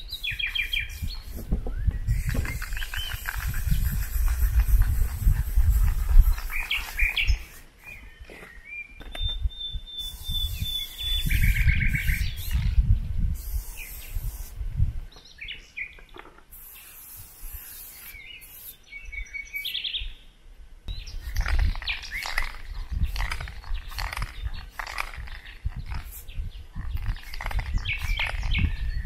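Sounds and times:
wind rumble on microphone: 0.0s - 7.6s, 9.0s - 15.6s, 20.8s - 29.0s
aerosol spray paint hissing: 0.0s - 8.0s, 10.0s - 14.7s, 16.5s - 18.8s, 21.1s - 28.6s
birds chirping and trilling: 0.0s - 14.5s, 15.1s - 29.0s.

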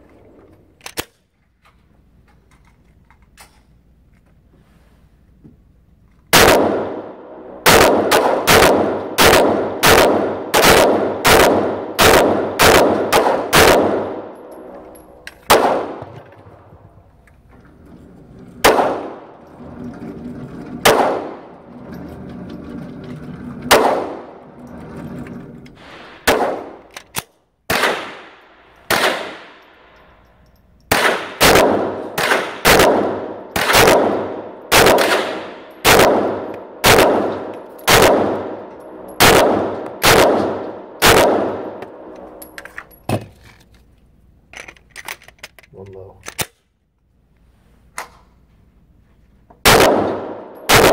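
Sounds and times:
pistol shots echoing indoors: 6.3s - 16.6s, 18.4s - 21.6s, 25.8s - 30.2s, 30.9s - 42.4s, 49.6s - 50.9s.

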